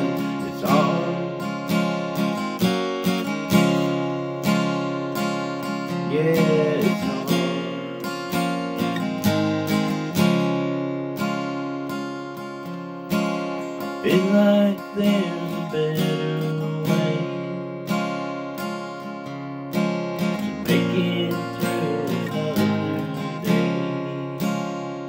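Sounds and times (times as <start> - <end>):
acoustic guitar strumming: 0.0 - 25.0.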